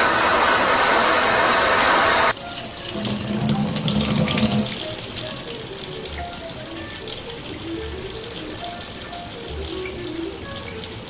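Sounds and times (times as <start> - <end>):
faucet running into sink: 2.3 - 11.0.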